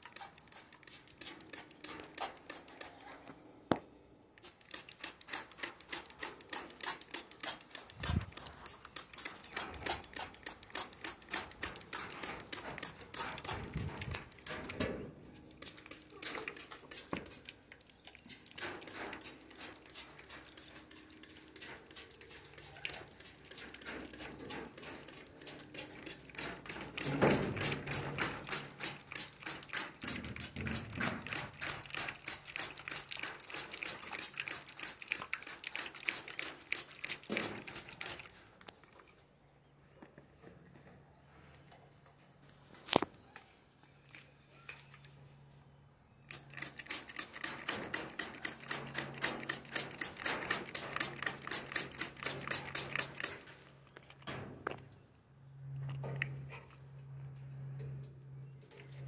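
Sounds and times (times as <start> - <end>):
mist sprayer hissing spurts: 4.4 - 14.5, 46.3 - 53.5.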